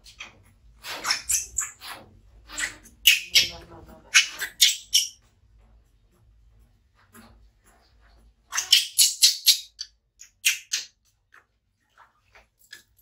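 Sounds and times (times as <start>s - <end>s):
infant monkey screeching: 0.8s - 5.1s.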